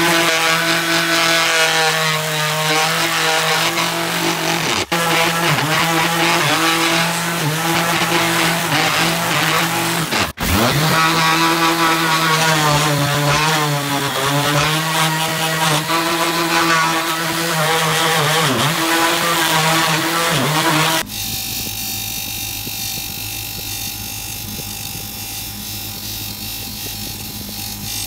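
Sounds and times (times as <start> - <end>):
orbital sander on wood: 0.0 - 28.0.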